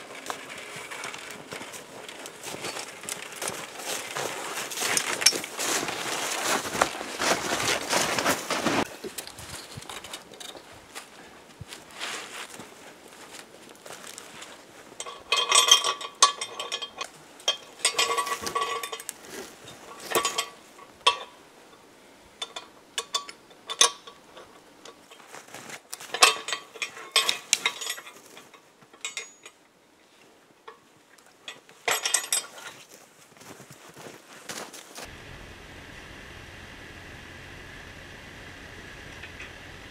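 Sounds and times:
metal rigging hardware clinking: 15.0 - 21.3, 25.9 - 29.6, 31.5 - 32.8.

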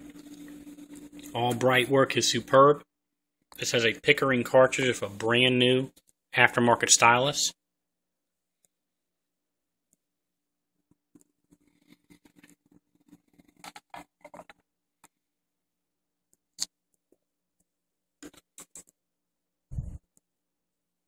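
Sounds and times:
faint steady hum: 0.0 - 2.9.

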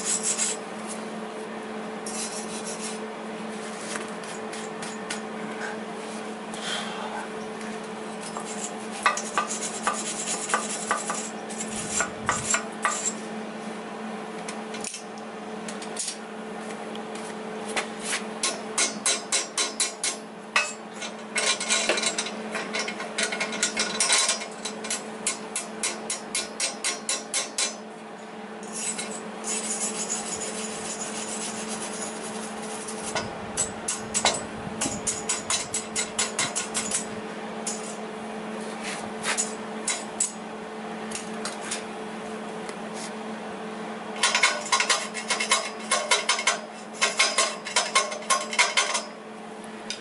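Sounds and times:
wire brush scrubbing metal: 0.0 - 1.0, 2.1 - 3.0, 8.1 - 13.2, 28.6 - 37.1.

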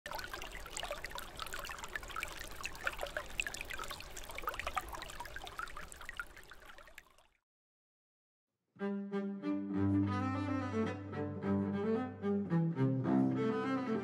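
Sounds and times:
stream trickling and babbling: 0.0 - 7.4
water splashes: 0.0 - 7.4.

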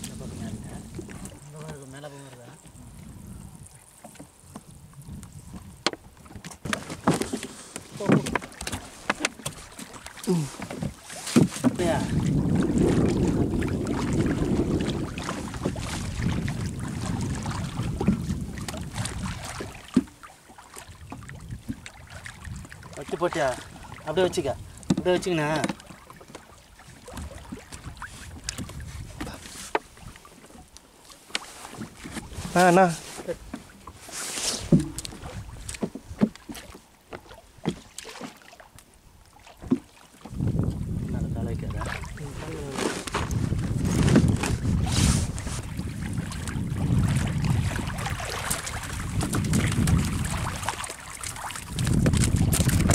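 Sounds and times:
wind buffeting microphone: 0.0 - 6.8, 10.3 - 20.1, 20.8 - 25.9, 26.8 - 30.2, 34.6 - 36.4, 39.6 - 52.9
water washing against boat hull: 0.0 - 52.9
gear knocking on wooden boat: 24.9 - 25.9, 34.7 - 37.8
sharp knocks: 34.7 - 35.1.

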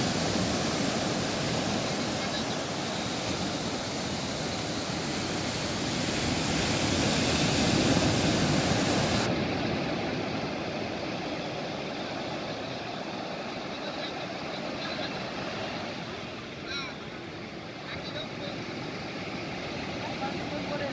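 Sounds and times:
ocean surf breaking: 0.0 - 20.9.

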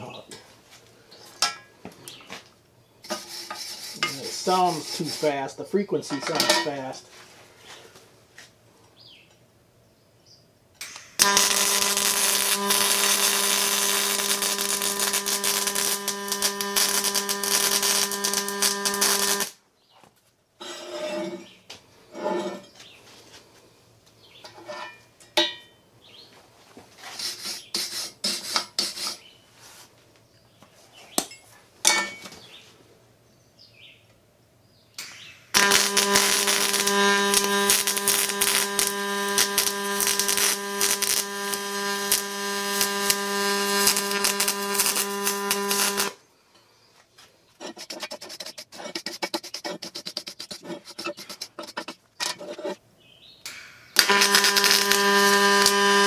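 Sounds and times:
welding arc buzzing: 10.8 - 19.6, 35.0 - 46.2, 53.4 - 56.0.

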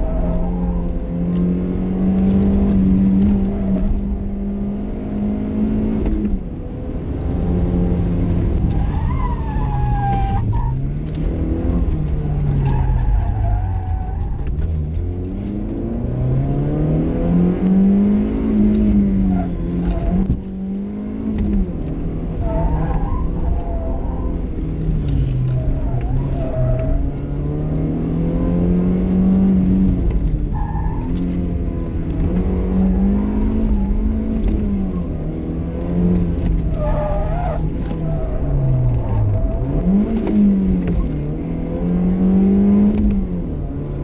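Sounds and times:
car engine revving: 0.0 - 44.0
tyre squeal: 36.6 - 40.6.

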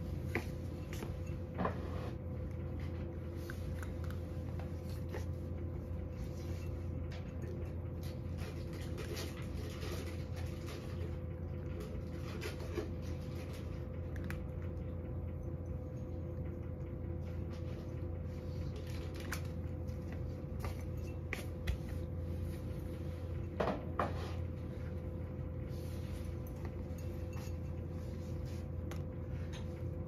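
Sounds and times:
cat eating crunching and licking: 0.0 - 23.6
steady low hum: 0.0 - 30.0.

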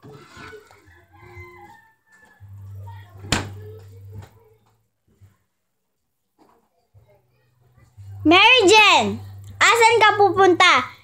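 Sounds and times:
rooster crowing: 0.7 - 2.7.

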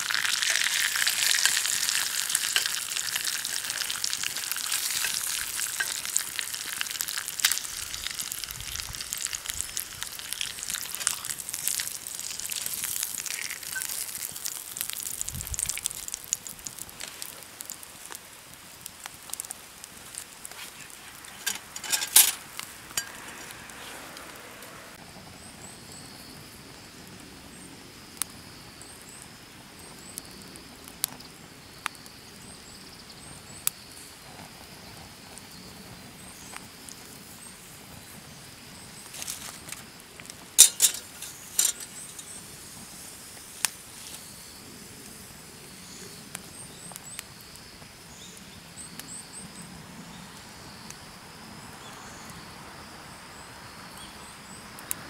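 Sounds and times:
faint insect drone: 16.1 - 55.0
sharp clicks and cracks: 39.1 - 42.4.

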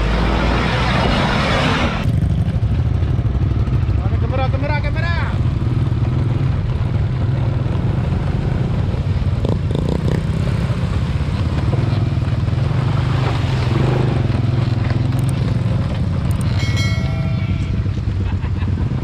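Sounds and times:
motorcycle engine running: 2.0 - 19.0
wheels splashing through stream: 6.1 - 19.0.

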